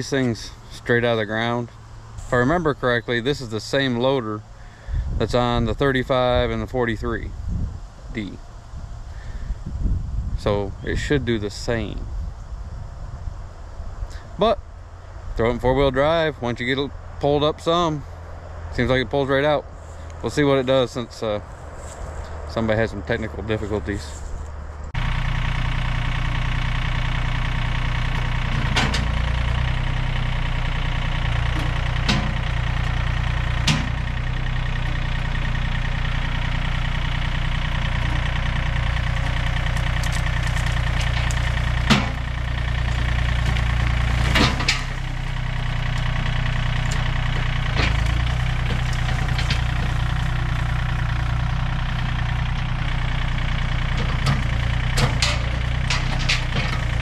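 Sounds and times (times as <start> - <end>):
diesel tractor engine running: 0.0 - 57.0.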